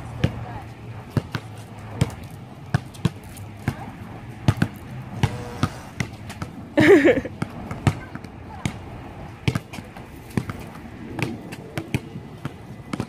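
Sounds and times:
ball bouncing: 1.1s - 6.6s, 9.4s - 13.0s.

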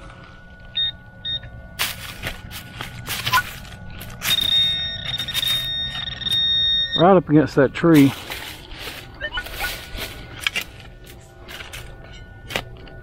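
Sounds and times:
metal detector beeps and tones: 0.7s - 7.6s
digging tool scraping soil: 1.8s - 5.7s, 7.9s - 12.7s.

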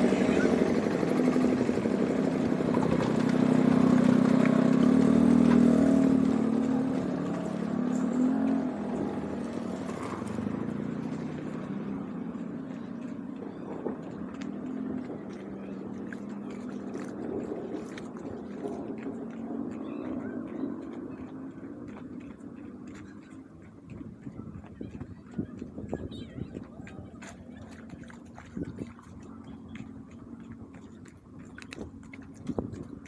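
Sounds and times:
small motorbike engine running: 0.0s - 33.0s.

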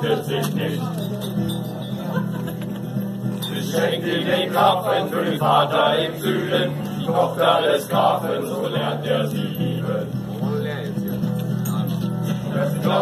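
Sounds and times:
group singing in unison: 0.0s - 0.8s, 3.4s - 10.2s, 12.3s - 13.0s.

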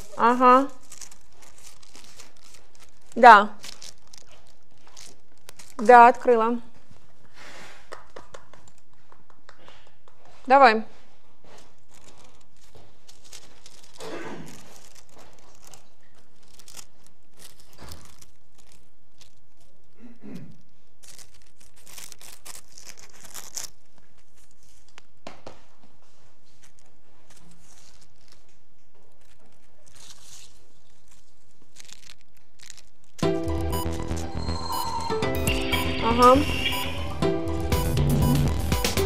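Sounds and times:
rustling and crinkling: 0.0s - 9.2s, 10.2s - 33.2s
music: 33.2s - 39.0s.

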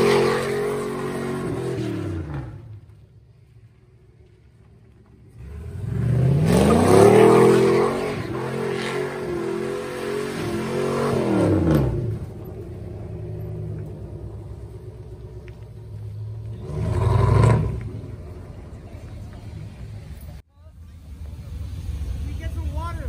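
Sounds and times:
pickup engine revving: 0.0s - 2.7s, 5.3s - 18.8s
tyres spinning in burnout: 5.4s - 14.8s.

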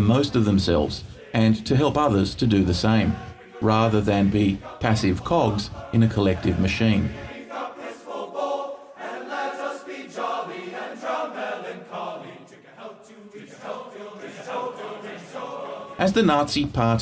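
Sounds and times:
choir singing slow phrases: 0.0s - 16.1s.

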